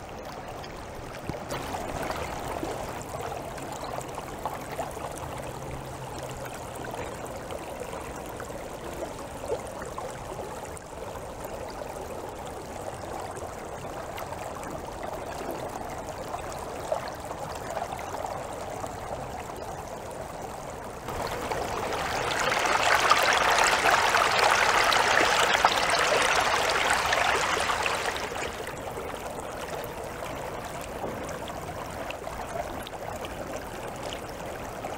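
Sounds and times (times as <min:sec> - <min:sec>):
river water rushing: 0:00.8 - 0:04.3, 0:21.1 - 0:33.2.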